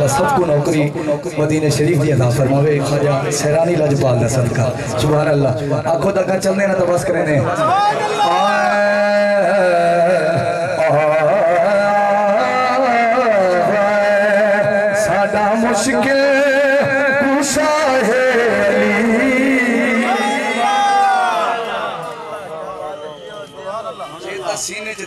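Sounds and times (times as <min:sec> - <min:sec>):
man singing over loudspeaker: 0:00.0 - 0:25.0.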